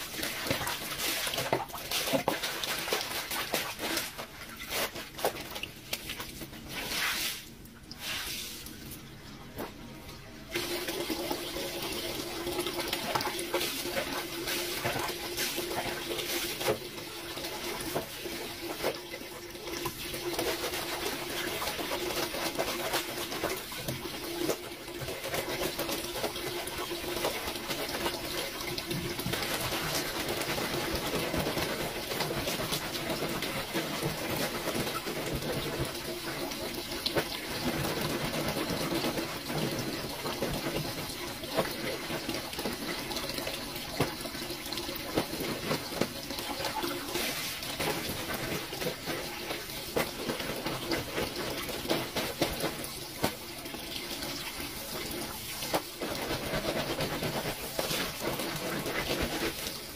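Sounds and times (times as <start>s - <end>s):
scrubbing clothes on washboard: 0.0s - 9.0s, 10.5s - 59.9s.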